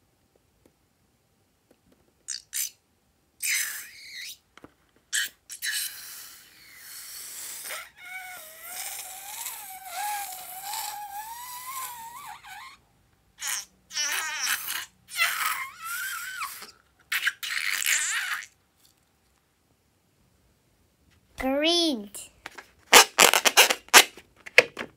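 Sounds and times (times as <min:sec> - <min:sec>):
balloon neck squealing: 0:03.4 - 0:04.4, 0:05.1 - 0:12.8, 0:13.4 - 0:18.6, 0:22.9 - 0:24.1.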